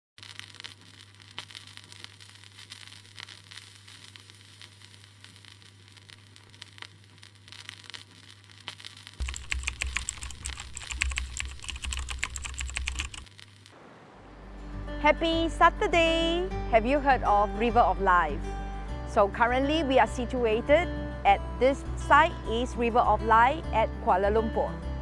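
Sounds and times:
old film crackle: 0:00.2 - 0:13.7.

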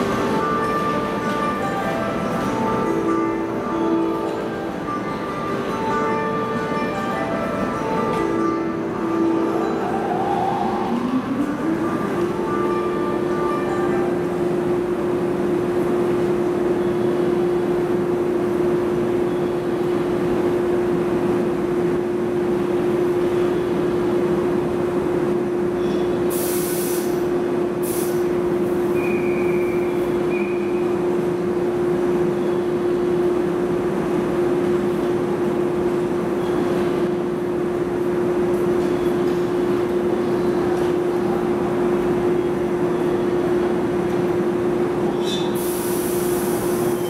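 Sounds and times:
electric train humming: 0:00.0 - 0:47.0
air release hisses: 0:26.3 - 0:27.2, 0:27.8 - 0:28.3, 0:45.6 - 0:47.0.

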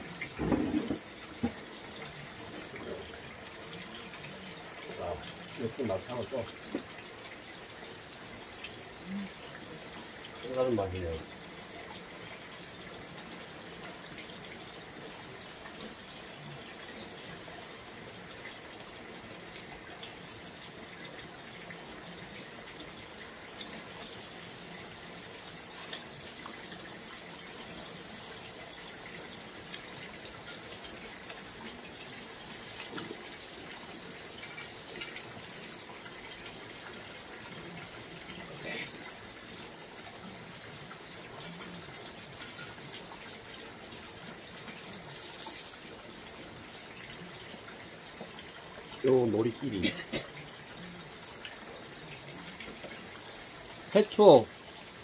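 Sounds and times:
water running: 0:00.0 - 0:55.0.

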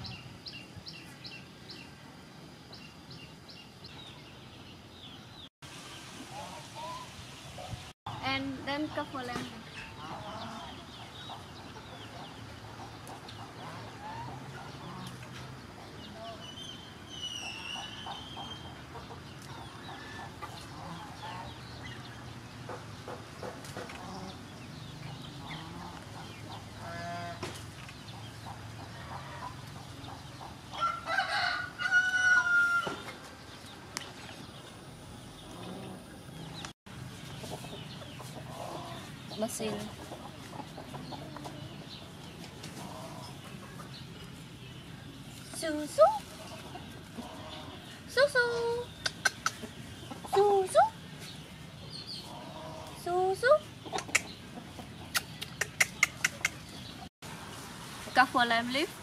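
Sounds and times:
chickens clucking: 0:06.3 - 0:57.1
rooster crowing: 0:30.8 - 0:33.1.

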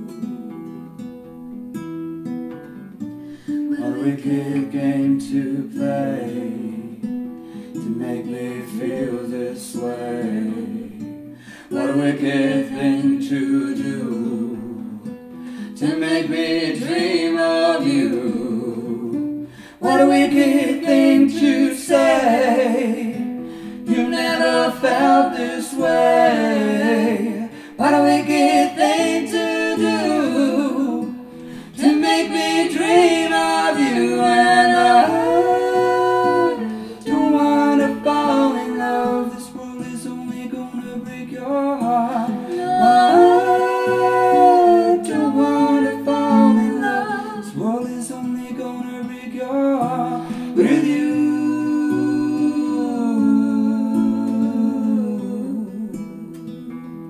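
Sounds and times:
strummed classical guitar: 0:00.0 - 0:57.0
man and woman singing: 0:03.4 - 0:56.3.

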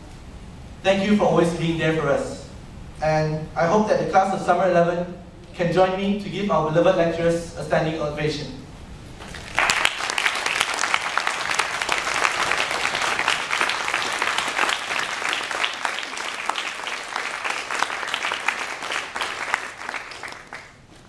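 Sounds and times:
audience applauding: 0:09.2 - 0:20.8.

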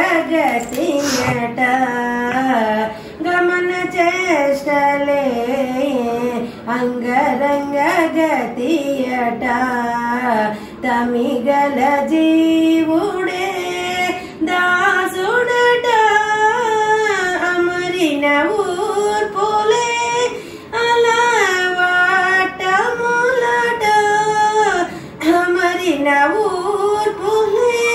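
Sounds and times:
woman singing solo: 0:00.0 - 0:17.3.

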